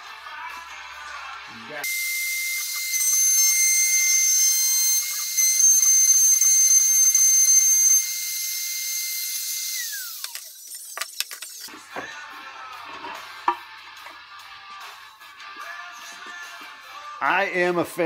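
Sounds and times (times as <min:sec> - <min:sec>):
router cutting wood: 0:01.8 - 0:11.6
router whining: 0:01.8 - 0:11.8.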